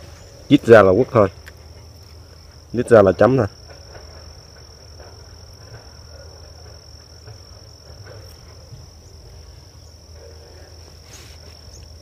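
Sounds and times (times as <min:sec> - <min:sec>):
insects calling: 0:00.0 - 0:12.0.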